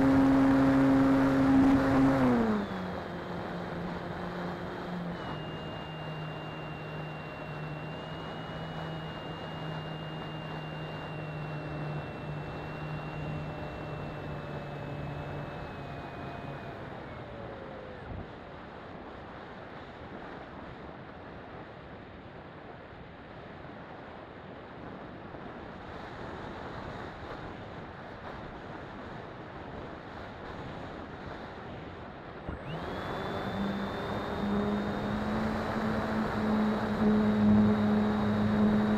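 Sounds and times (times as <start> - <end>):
model plane motor whining: 0.0 - 18.5, 32.5 - 38.9.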